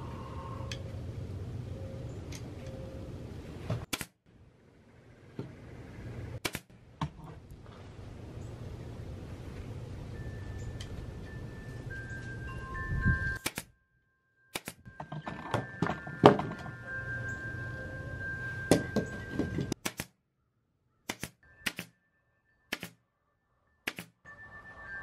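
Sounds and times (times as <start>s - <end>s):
pneumatic nail gun shots: 19.8s - 20.1s, 21.1s - 21.9s.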